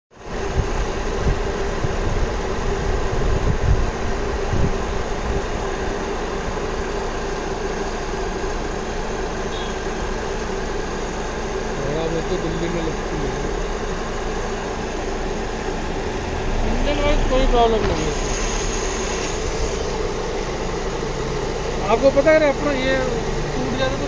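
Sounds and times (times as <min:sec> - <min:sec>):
car engine idling: 0:00.1 - 0:24.0.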